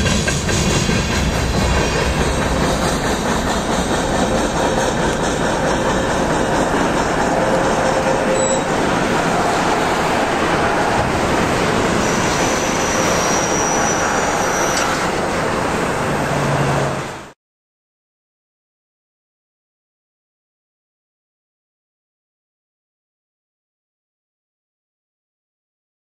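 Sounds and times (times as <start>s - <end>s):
train wheels running over rails: 0.0s - 17.4s.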